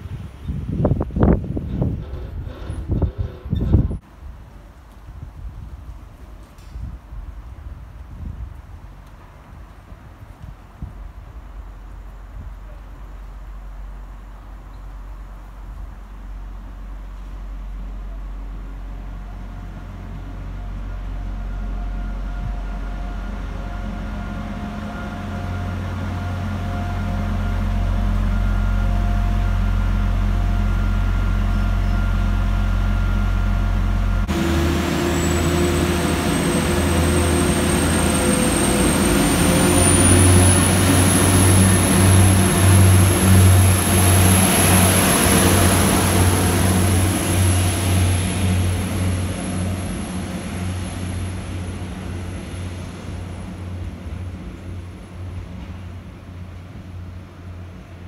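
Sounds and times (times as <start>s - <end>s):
train engine drone: 0.0s - 58.0s
high whine: 18.8s - 54.8s.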